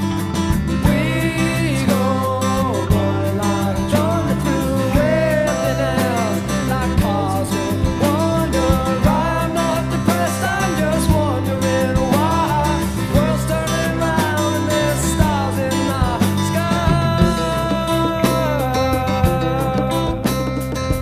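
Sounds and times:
rock band playing: 0.0s - 21.0s.

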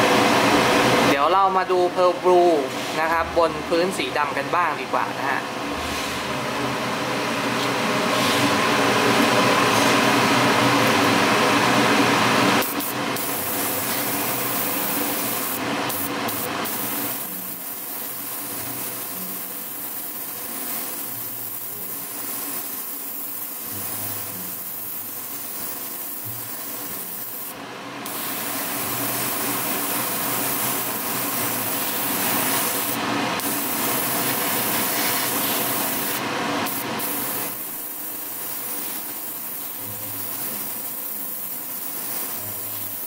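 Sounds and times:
spray booth fan humming: 0.0s - 43.0s
airbrush hissing: 12.6s - 43.0s.

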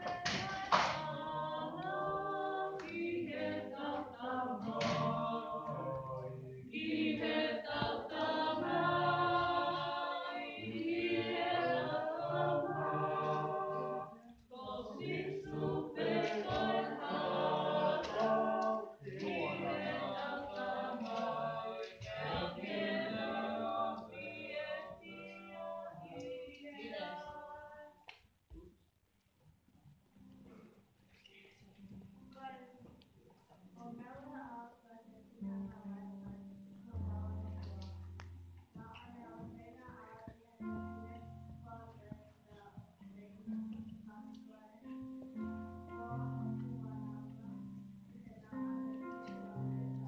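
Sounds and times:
children singing: 0.0s - 27.6s.

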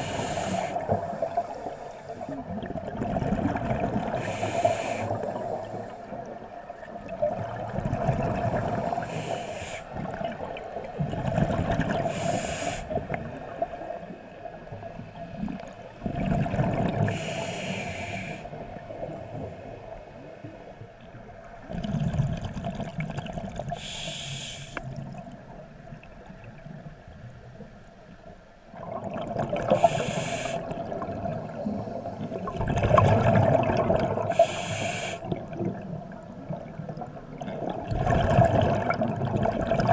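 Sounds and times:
regulator inhale hiss: 0.0s - 2.4s, 4.2s - 6.2s, 8.8s - 10.0s, 12.0s - 13.0s, 17.1s - 18.6s, 23.8s - 24.9s, 29.7s - 30.8s, 34.3s - 35.4s
exhaled bubbles rumbling: 0.0s - 4.5s, 5.1s - 9.1s, 9.9s - 12.2s, 12.9s - 17.3s, 18.5s - 23.8s, 28.7s - 34.5s, 35.2s - 39.9s.

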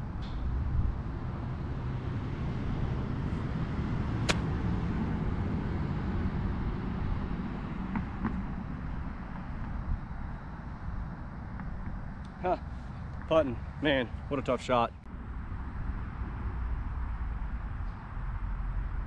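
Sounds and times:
golf club striking ball: 4.2s - 4.6s.

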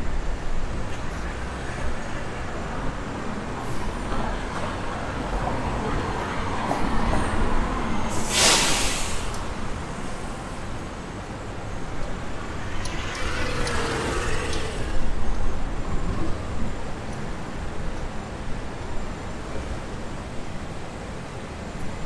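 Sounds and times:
street traffic rumbling: 0.0s - 22.0s
loud hiss: 8.1s - 10.6s.

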